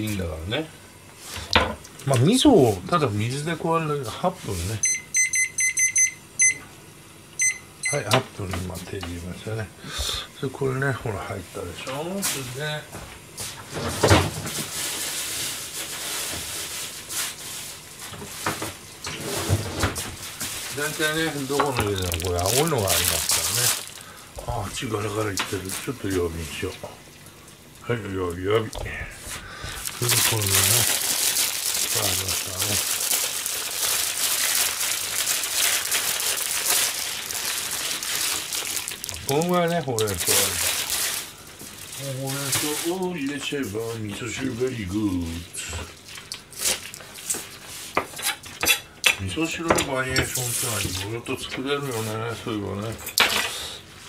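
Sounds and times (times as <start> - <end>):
plastic bag crinkling: 20.6 - 26.7, 28.3 - 43.4.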